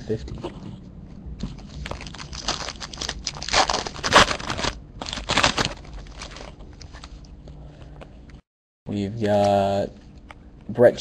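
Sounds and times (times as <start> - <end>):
foil wrapper crinkling and tearing: 1.6 - 7.1.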